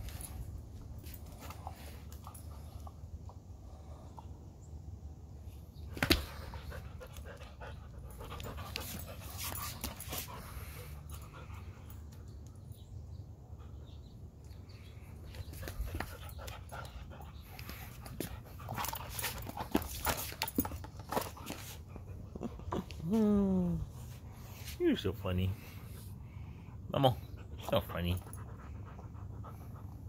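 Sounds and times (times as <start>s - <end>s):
dog panting: 6.4s - 12.1s, 15.3s - 20.7s, 25.6s - 30.0s.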